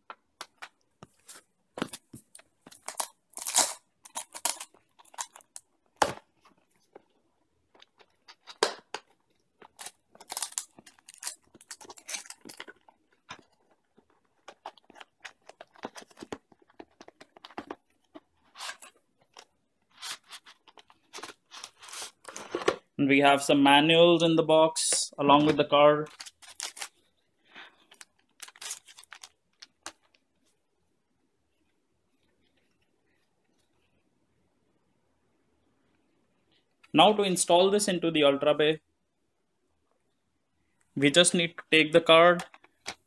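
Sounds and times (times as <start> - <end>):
packaging rustles scrapes and clicks: 9.3 - 22.8, 26.1 - 27.0, 27.6 - 30.2.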